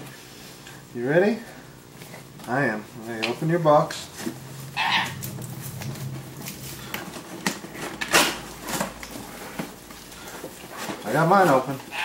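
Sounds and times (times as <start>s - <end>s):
cardboard rustling and scraping: 3.8s - 11.9s.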